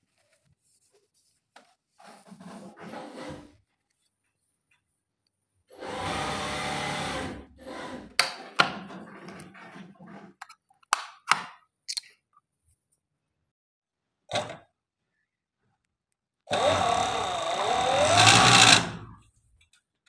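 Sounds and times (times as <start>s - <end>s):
sewing machine running: 5.8s - 7.9s, 16.5s - 19.1s.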